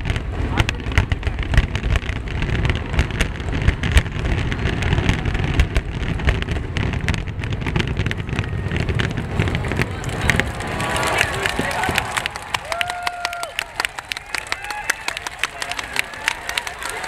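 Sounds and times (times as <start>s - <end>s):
low booming: 0.0s - 12.8s
firework shells bursting: 0.0s - 15.5s.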